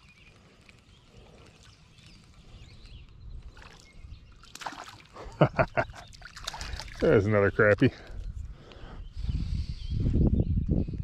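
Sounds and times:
fish splashing at water surface: 4.4s - 5.3s, 6.0s - 7.0s.

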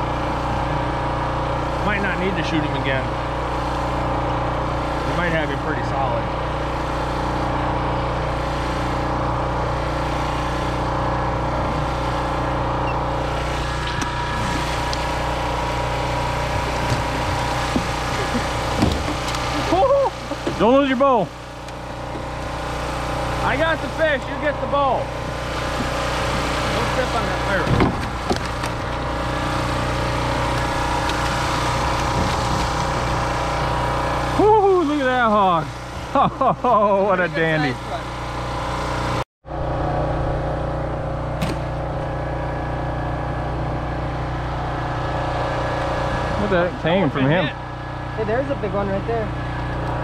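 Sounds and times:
boat engine drone: 0.0s - 50.0s.

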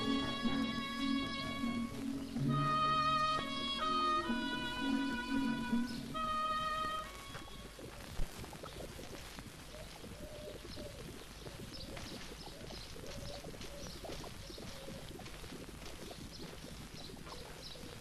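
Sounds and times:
bird cooing: 0.0s - 8.2s, 9.7s - 15.2s
background hiss: 0.0s - 18.0s
birds chirping: 0.0s - 18.0s.

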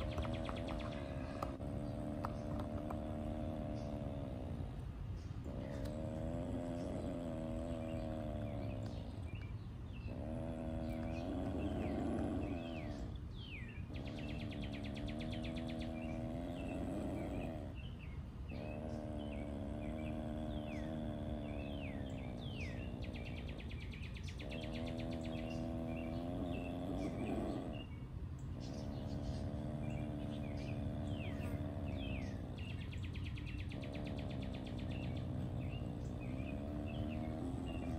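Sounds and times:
birds chirping: 0.0s - 37.9s
low steady hum: 0.0s - 37.9s.

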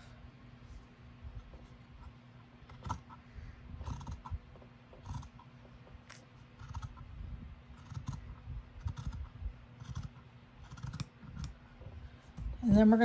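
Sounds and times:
scissors snipping fabric: 7.8s - 8.2s, 9.8s - 11.6s.

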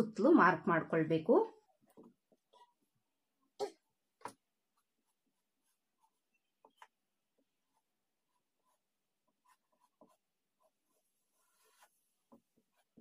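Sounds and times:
chalk scratching on fabric: 7.6s - 13.0s.

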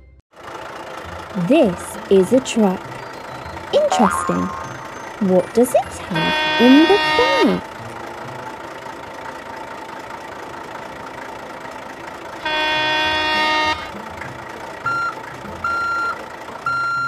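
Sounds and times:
truck horn honk: 3.8s - 8.6s, 12.3s - 17.0s
reversing beeps: 6.0s - 7.6s, 14.8s - 17.0s.

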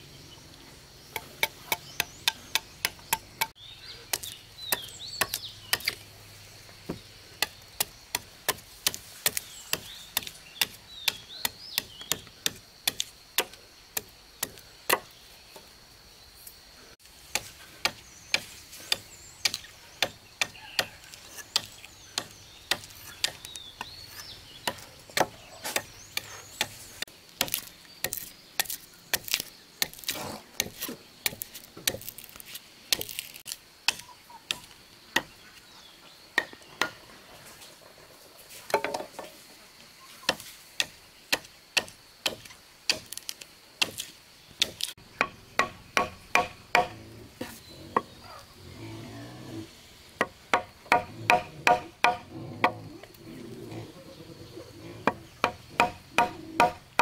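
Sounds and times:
blade chopping wood: 55.1s - 57.0s.

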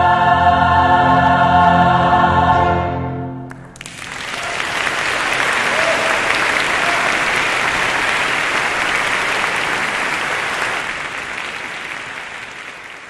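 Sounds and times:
audience applauding: 3.5s - 13.0s.

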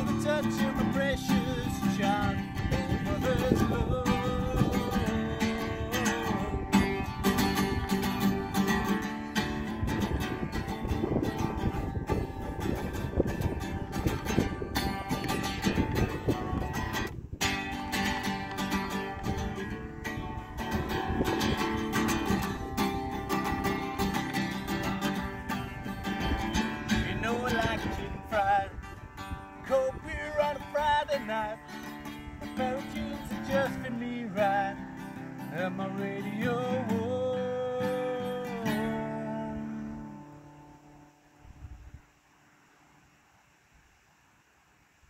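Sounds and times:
person singing wordless vocal: 0.0s - 6.8s, 35.5s - 40.3s
acoustic guitar strumming: 0.0s - 41.5s.

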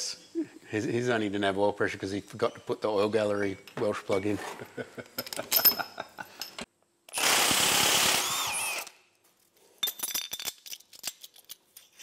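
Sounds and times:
small metal parts clinking: 5.2s - 6.7s, 9.8s - 12.0s
power tool running: 7.1s - 9.0s.

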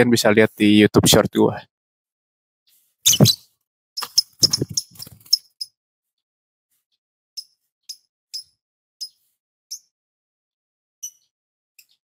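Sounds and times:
lovebird chirping: 3.1s - 3.4s, 4.0s - 5.7s.

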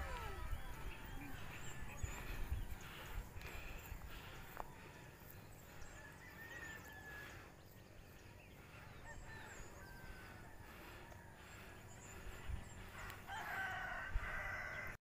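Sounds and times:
distant rooster crowing: 5.8s - 7.6s, 8.6s - 15.0s.

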